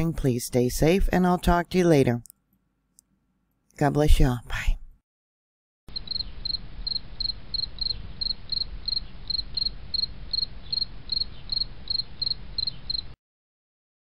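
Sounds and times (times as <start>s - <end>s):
cricket chirping: 5.9s - 13.2s.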